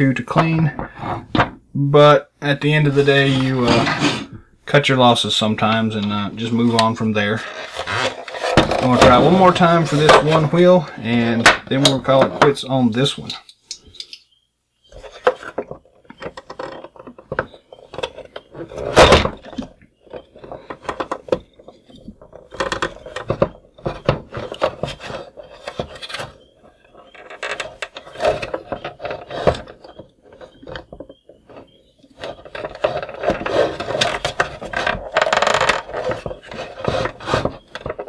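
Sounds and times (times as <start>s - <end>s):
pliers scraping plastic: 6.7s - 10.6s.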